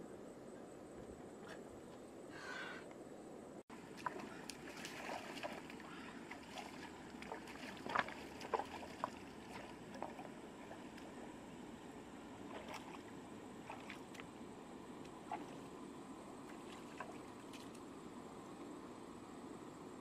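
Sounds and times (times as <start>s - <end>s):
water sloshing and lapping: 3.7s - 17.9s
short splashes or knocks: 3.9s - 11.1s.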